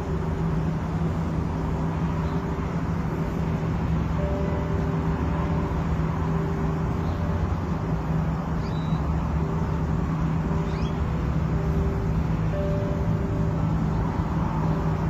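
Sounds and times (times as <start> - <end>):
low hum: 0.0 - 15.0
outdoor background rumble: 0.0 - 15.0
faint high chirps: 8.6 - 9.2, 10.5 - 11.1.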